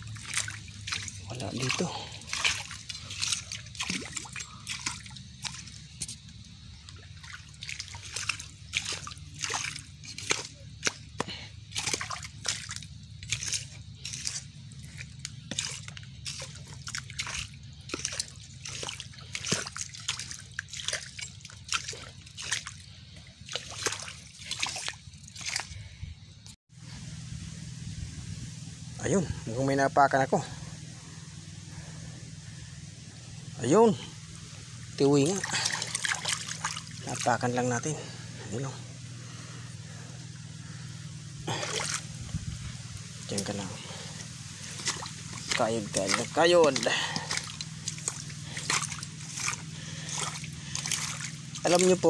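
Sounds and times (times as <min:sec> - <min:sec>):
feet wading through muddy water: 0:00.0 - 0:52.0
steady low rumble: 0:00.0 - 0:52.0.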